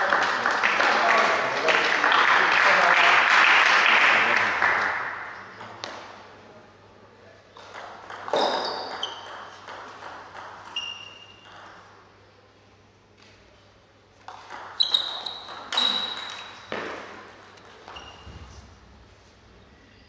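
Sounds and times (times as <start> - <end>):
short high-pitched squeaks: 10.7 - 11.4, 14.8 - 16.7, 17.9 - 18.5.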